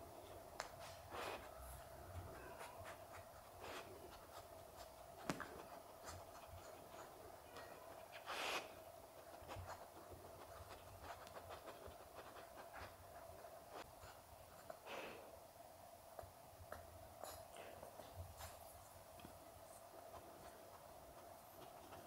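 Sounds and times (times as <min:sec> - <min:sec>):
faint steady hum: 0:00.0 - 0:22.0
dog breathy puff: 0:08.2 - 0:08.7.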